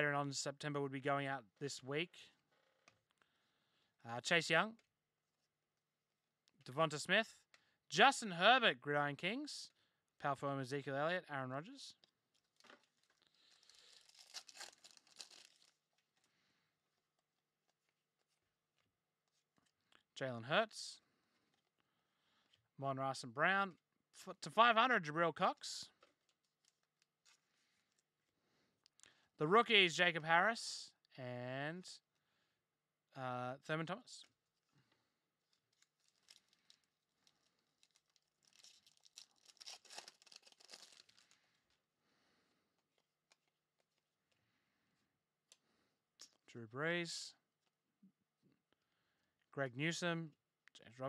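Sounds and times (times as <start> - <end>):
foil wrapper crinkling and tearing: 12.4 - 15.9, 35.4 - 41.4.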